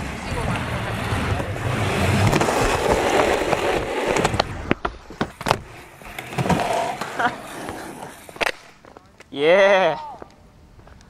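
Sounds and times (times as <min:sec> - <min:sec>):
skateboard wheels rolling on concrete: 0:00.0 - 0:11.0
skateboard deck cracks and clacks: 0:00.5 - 0:09.3.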